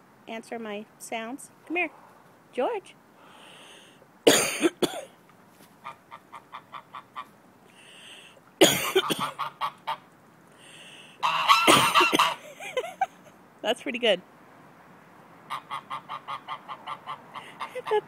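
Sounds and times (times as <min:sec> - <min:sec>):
person fake coughing: 0:04.3 - 0:05.1, 0:08.6 - 0:09.3, 0:11.7 - 0:12.3
goose honking loudly: 0:09.1 - 0:10.0, 0:11.2 - 0:12.4, 0:15.5 - 0:18.0.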